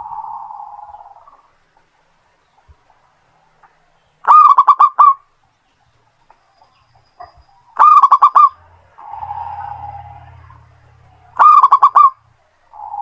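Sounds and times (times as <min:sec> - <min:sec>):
dove cooing: 0:00.0 - 0:01.5, 0:04.3 - 0:05.2, 0:07.8 - 0:10.5, 0:11.3 - 0:13.0
faint steady hum: 0:00.0 - 0:13.0.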